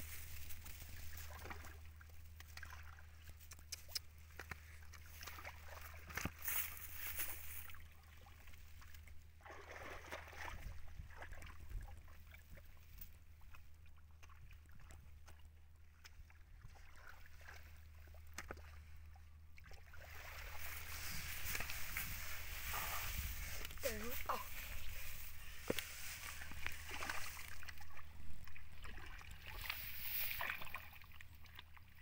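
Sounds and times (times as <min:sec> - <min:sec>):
low steady hum: 0:00.0 - 0:32.0
hands squelching in wet mud: 0:19.6 - 0:32.0.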